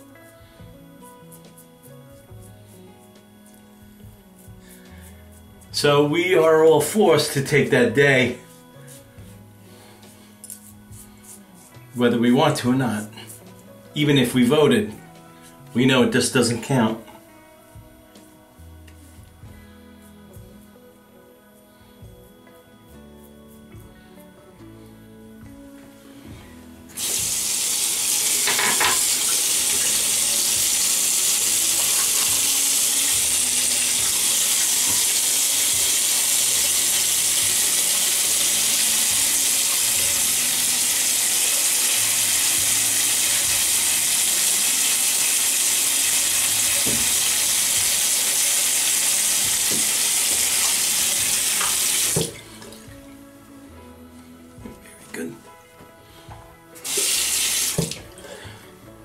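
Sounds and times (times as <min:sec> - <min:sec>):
sink tap running: 0:26.9 - 0:52.9, 0:56.8 - 0:58.1.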